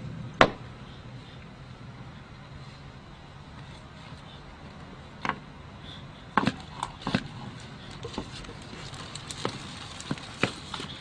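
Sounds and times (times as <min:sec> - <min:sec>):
tortoise shells clacking: 0:03.7 - 0:11.0.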